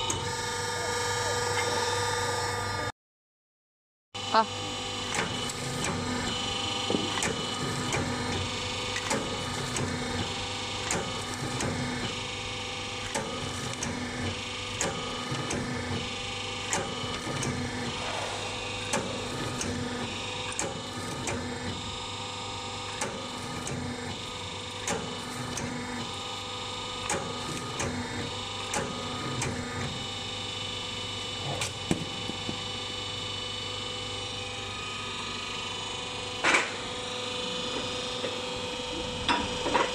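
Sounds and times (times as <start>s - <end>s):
machine humming: 17.6s - 21.6s.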